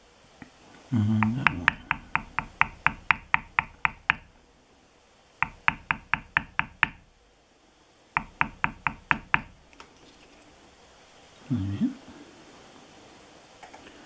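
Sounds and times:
mallet striking metal stamping tool: 1.2 - 4.3, 5.4 - 7.0, 8.2 - 9.6.

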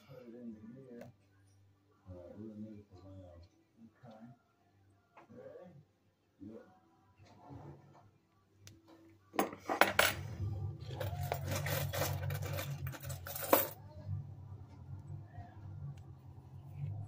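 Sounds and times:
metal coins clinking: 10.9 - 13.8.

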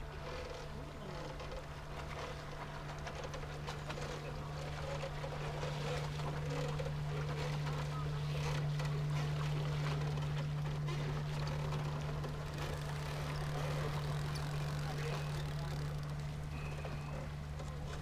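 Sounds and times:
boat motor humming: 0.0 - 18.0
faint voices: 10.8 - 18.0.

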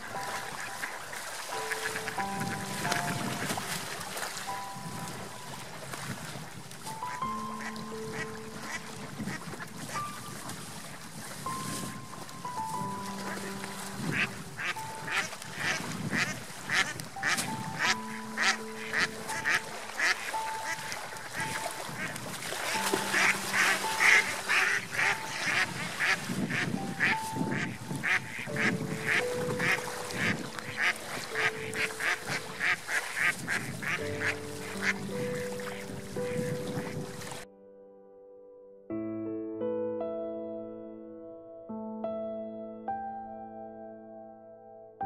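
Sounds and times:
ducks quacking: 0.0 - 5.1, 6.8 - 10.6, 12.7 - 37.4
soft background music: 0.0 - 45.0.

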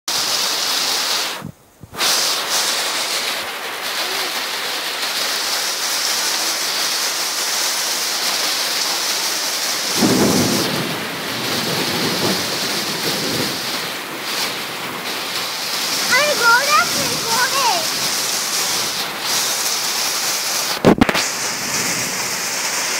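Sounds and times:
heavy rain pouring: 0.1 - 22.9
water spouting from drainpipe: 0.1 - 22.9.

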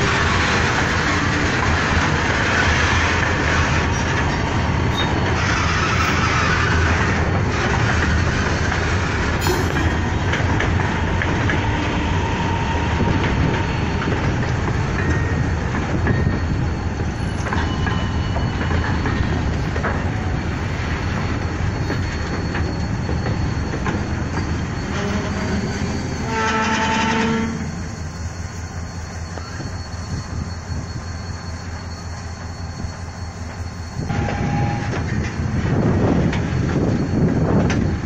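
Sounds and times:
freight wagons rumbling on rails: 0.0 - 38.0
locomotive horn blast: 24.8 - 27.8, 34.1 - 35.0.

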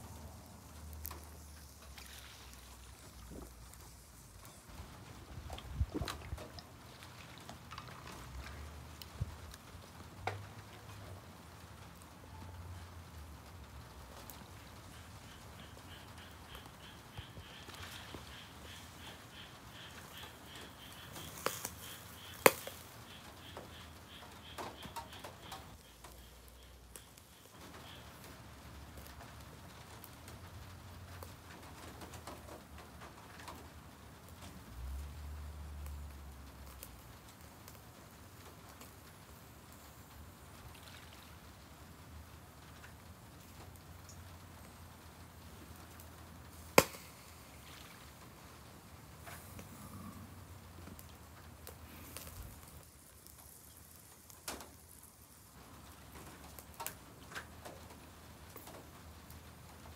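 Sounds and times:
meat and coals popping and crackling: 0.0 - 59.9
loud pop from grill: 46.7 - 47.1.

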